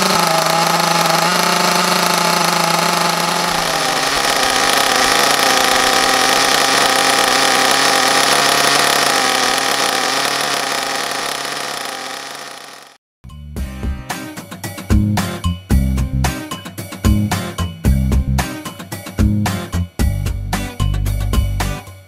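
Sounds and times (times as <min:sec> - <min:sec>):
model car engine idling: 0:00.0 - 0:13.0.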